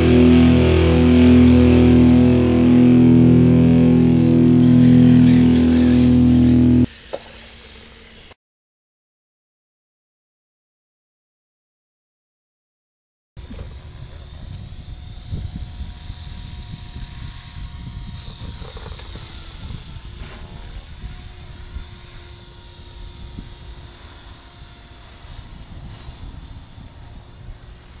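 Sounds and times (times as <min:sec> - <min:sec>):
low rumble: 0:00.0 - 0:06.9
model helicopter whine: 0:00.0 - 0:08.4, 0:13.4 - 0:28.0.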